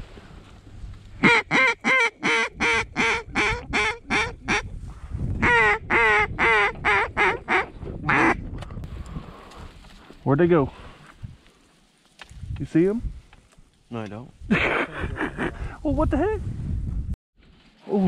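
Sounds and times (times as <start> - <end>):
goose call honking: 1.2 - 4.6, 5.4 - 8.4.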